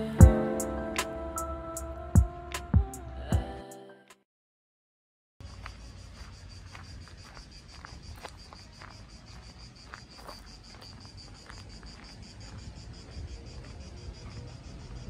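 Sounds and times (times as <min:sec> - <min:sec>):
insects chirping: 0:05.4 - 0:15.0.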